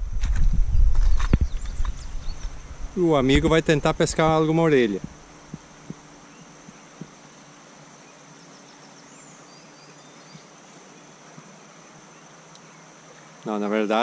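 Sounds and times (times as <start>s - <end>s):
insect drone: 0.0s - 14.0s
faint bird chirps: 7.9s - 13.5s.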